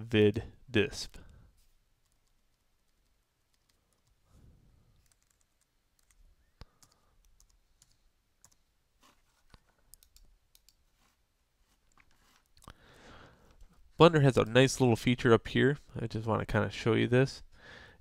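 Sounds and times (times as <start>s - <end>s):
computer keyboard typing: 2.0s - 4.2s, 5.0s - 8.6s, 9.9s - 10.8s.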